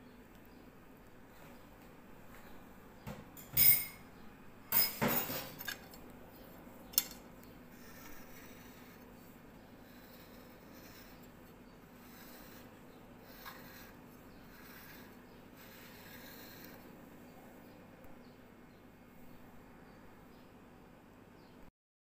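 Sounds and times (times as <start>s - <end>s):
faint room noise: 0.0s - 21.7s
tableware clinks and scrapes: 3.4s - 4.0s, 4.7s - 6.0s, 6.9s - 7.2s.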